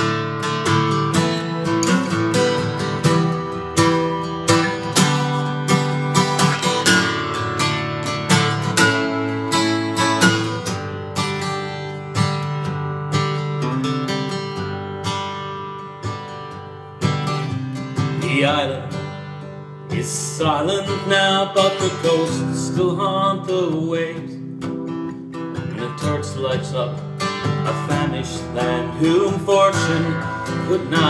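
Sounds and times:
acoustic guitar strumming chords: 0.0s - 31.0s.

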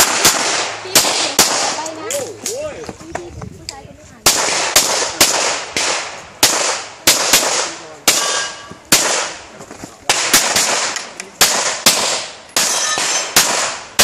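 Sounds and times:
handgun shots with echo: 4.3s - 9.4s, 10.1s - 14.0s
metallic target ringing: 12.6s - 13.4s.

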